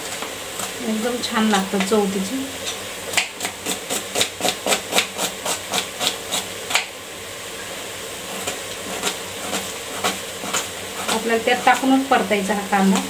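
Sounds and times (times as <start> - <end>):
chicken sizzling: 0.0 - 13.0
knife chopping onion on plastic board: 2.6 - 7.0, 8.3 - 12.2.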